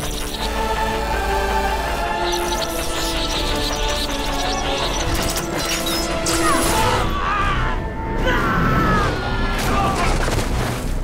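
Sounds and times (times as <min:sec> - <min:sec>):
orchestral score with gliding tones: 0:00.0 - 0:11.0.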